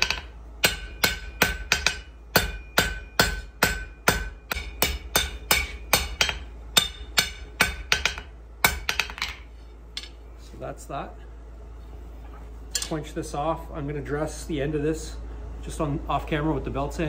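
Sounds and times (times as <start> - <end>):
hammer striking steel on anvil: 0.0 - 10.2.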